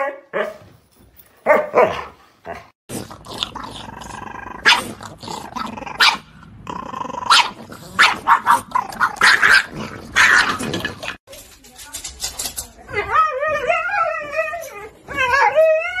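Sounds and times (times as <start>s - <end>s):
dog growling: 2.4s - 11.2s.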